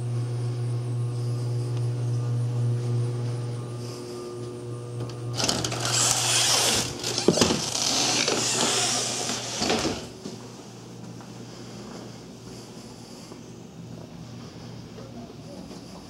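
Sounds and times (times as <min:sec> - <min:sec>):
steady low hum: 0:00.0 - 0:16.0
rustling and scraping: 0:05.4 - 0:10.4.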